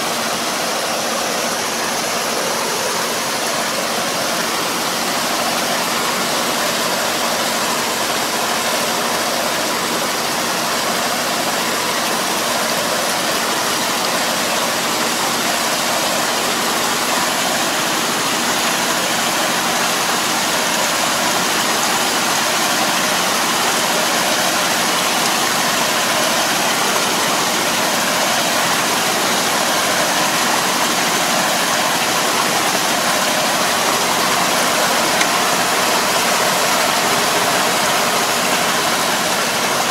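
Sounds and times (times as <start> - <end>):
muddy water splashing hiss: 0.0 - 39.9
tractor engine running under load: 0.0 - 39.9.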